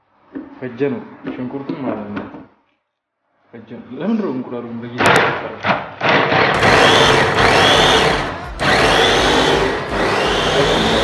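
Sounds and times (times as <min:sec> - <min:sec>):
electric food chopper running: 0:06.5 - 0:11.0.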